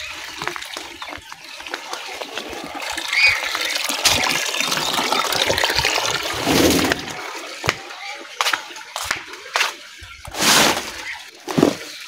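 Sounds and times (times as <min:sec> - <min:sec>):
leaves rustling and crackling: 0:10.3 - 0:11.8.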